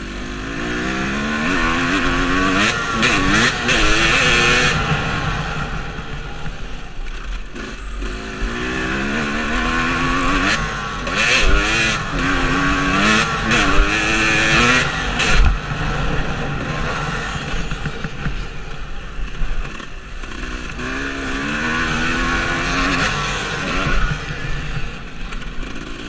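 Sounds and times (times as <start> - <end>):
dirt bike engine revving: 0.0 - 26.0.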